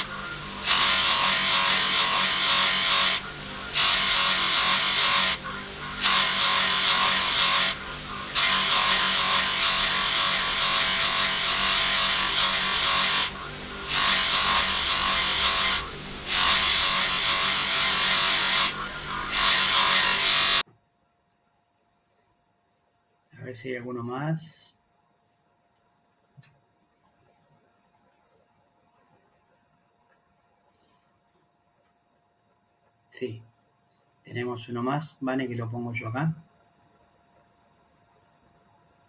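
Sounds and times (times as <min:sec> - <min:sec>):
buffing wheel rushing hiss: 0:00.0 - 0:20.6
polishing motor humming: 0:00.0 - 0:20.6.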